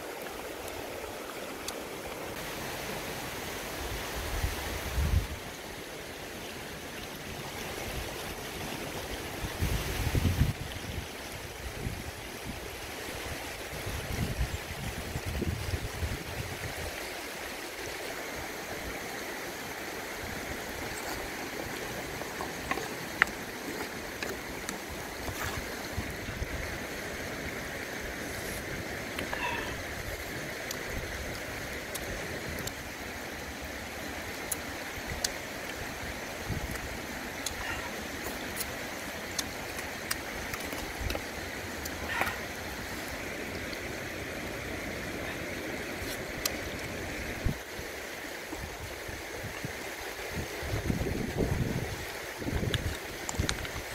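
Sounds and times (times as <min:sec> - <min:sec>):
river running over rocks: 0:00.0 - 0:53.9
wind rumble on microphone: 0:04.1 - 0:05.5, 0:09.3 - 0:16.9, 0:48.5 - 0:53.9.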